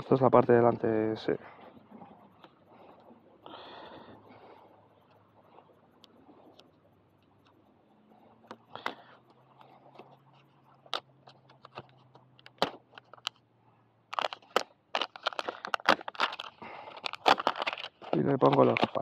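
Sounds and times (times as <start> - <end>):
velcro tearing: 14.1 - 19.0.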